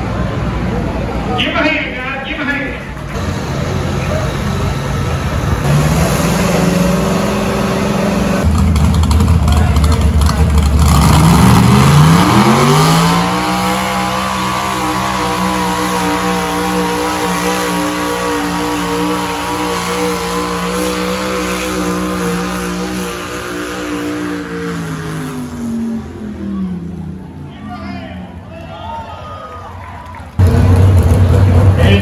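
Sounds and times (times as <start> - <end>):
tractor engine revving: 3.1 - 27.4.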